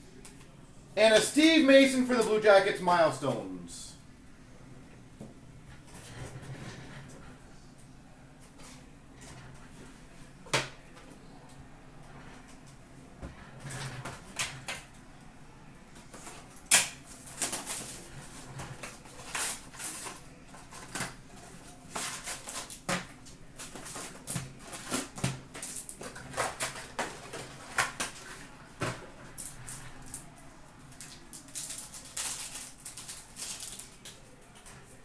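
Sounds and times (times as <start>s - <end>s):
cardboard and foil rustling: 16.0s - 35.0s.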